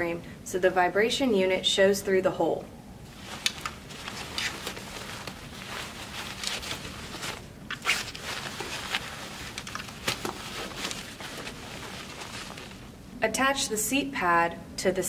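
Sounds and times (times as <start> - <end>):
fabric pad rustling: 3.0 - 13.2.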